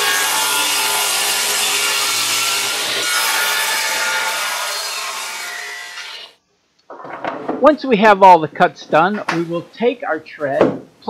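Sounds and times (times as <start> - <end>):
table saw cutting wood: 0.0 - 6.4.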